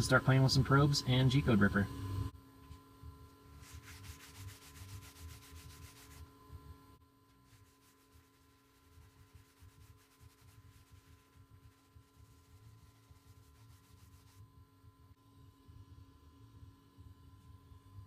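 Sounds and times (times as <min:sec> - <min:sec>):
cloth rag rubbing on wood: 0:03.6 - 0:06.3, 0:07.4 - 0:14.4.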